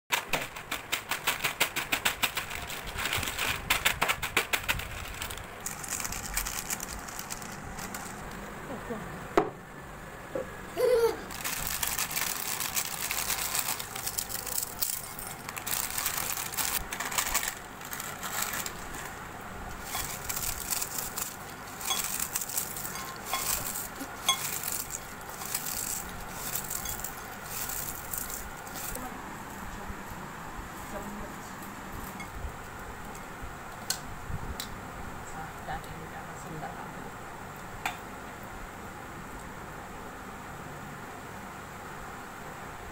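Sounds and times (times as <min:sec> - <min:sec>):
chips rattling into glass bowl: 0:00.1 - 0:08.4, 0:11.3 - 0:19.2, 0:19.8 - 0:29.0
chips crackling crushed by hand: 0:00.1 - 0:08.5, 0:11.3 - 0:29.0
foil packet crinkling: 0:00.1 - 0:08.6, 0:11.2 - 0:29.0.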